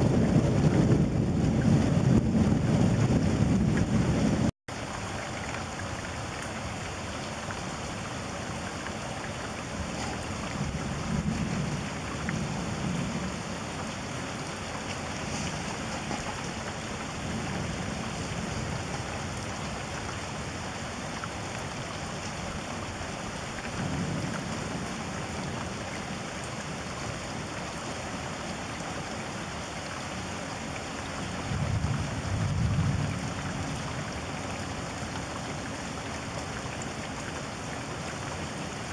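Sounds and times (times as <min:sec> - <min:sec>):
thunder rumbling: 0:00.0 - 0:04.5, 0:09.7 - 0:14.2, 0:31.4 - 0:34.0
heavy rain hissing: 0:00.0 - 0:38.9.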